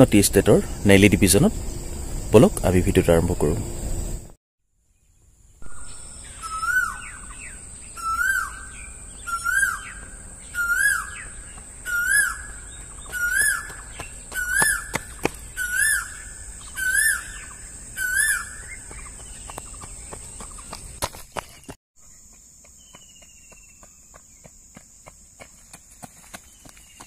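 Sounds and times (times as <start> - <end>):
bird whistled call: 5.6 - 19.2.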